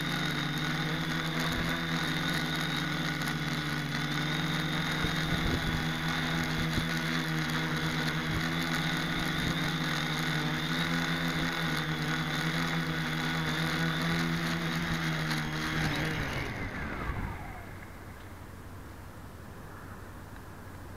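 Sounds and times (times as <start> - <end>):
motors spinning down: 0.0 - 19.0
drone motors humming: 0.0 - 20.9.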